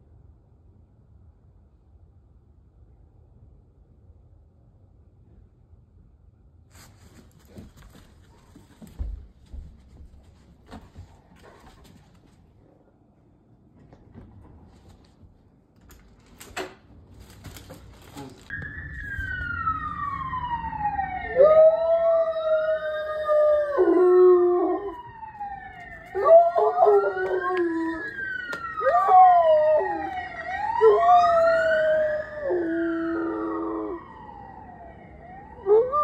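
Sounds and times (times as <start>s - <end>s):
police siren wailing: 18.5s - 36.0s
dog howling: 26.2s - 28.2s, 28.8s - 34.0s.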